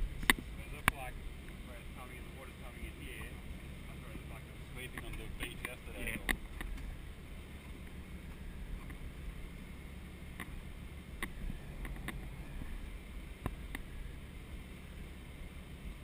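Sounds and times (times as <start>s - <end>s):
boat diesel engine droning: 0.0s - 16.0s
water noise: 0.0s - 16.0s
wind: 0.0s - 16.0s.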